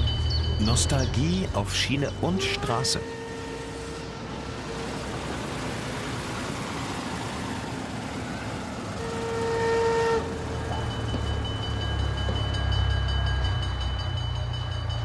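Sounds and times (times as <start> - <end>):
steam locomotive rumble: 0.0 - 15.0
vehicle road and wind noise: 0.0 - 15.0
vehicle horn: 2.2 - 4.9, 9.0 - 10.4.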